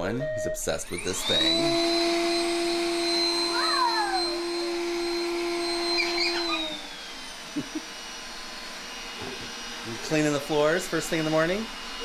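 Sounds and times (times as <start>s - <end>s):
robot vacuum humming and whining: 0.8s - 12.0s
short falling squeal: 5.8s - 6.8s.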